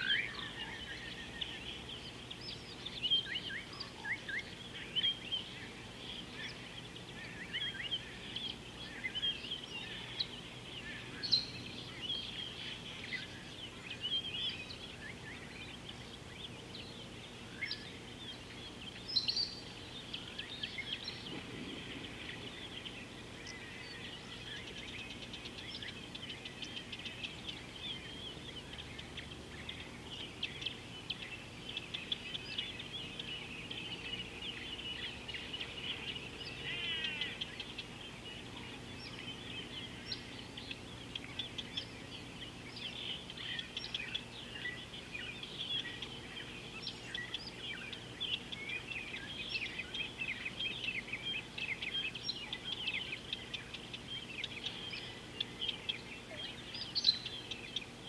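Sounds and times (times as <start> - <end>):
bird trill: 0.0 - 58.0
birds chirping and twittering: 0.0 - 58.0
faint low hum: 0.0 - 58.0.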